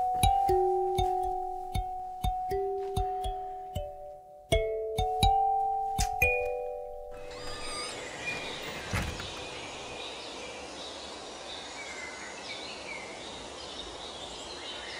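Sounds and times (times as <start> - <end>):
faint high chirps: 7.2 - 11.2.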